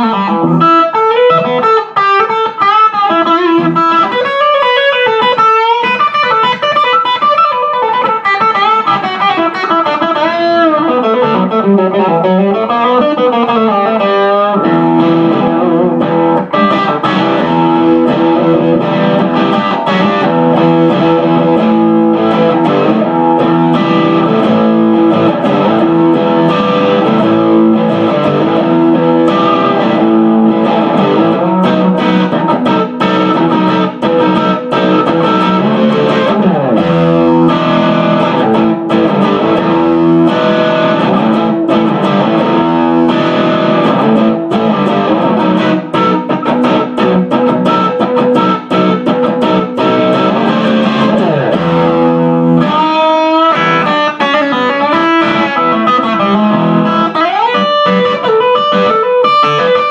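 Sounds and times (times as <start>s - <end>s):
overdriven electric guitar: 0.0s - 59.9s.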